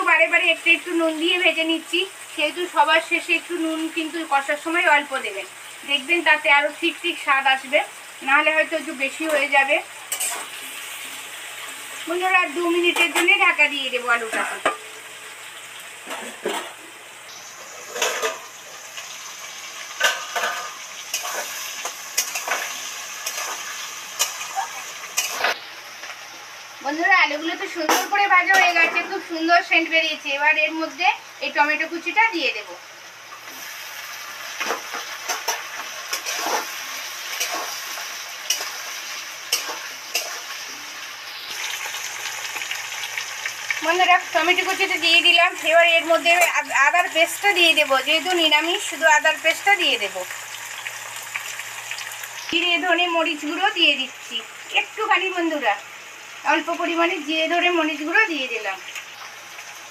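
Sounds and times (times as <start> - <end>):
potatoes sizzling in oil: 0.0 - 59.9
metal spatula scraping wok: 10.1 - 10.7, 17.6 - 18.5, 20.0 - 24.4, 25.1 - 25.6, 35.2 - 40.7
metal lid clanking on wok: 17.8 - 18.5.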